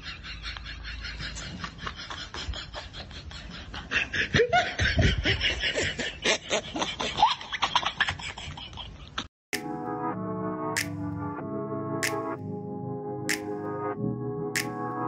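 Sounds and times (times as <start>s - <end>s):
people snickering and laughing: 0.0s - 9.3s.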